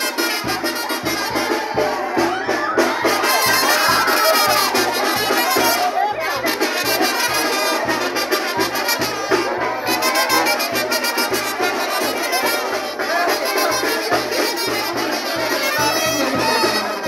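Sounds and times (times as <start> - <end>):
trumpets and trombones playing: 0.0 - 1.6, 3.0 - 17.0.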